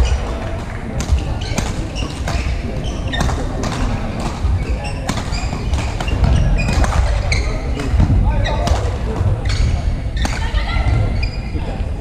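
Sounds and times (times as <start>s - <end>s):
rackets striking shuttlecock: 3.1s - 8.9s.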